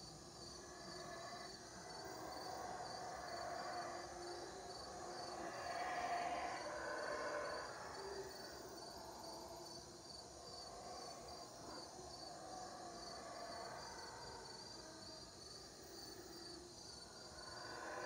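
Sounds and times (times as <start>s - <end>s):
insects chirping: 0.0s - 18.0s
howler monkeys roaring: 0.6s - 9.6s, 10.6s - 15.0s, 17.3s - 18.0s.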